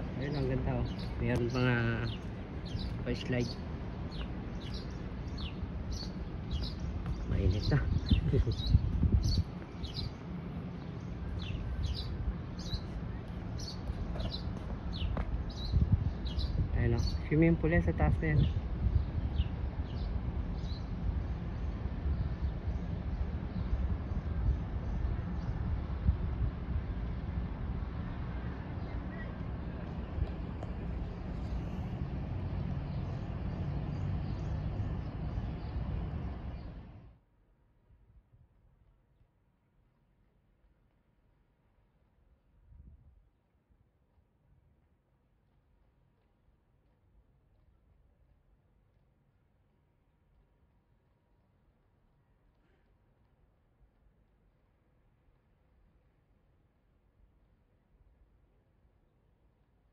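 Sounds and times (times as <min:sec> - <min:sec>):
outdoor background rumble: 0:00.0 - 0:37.2
small bird chirping: 0:00.1 - 0:17.2.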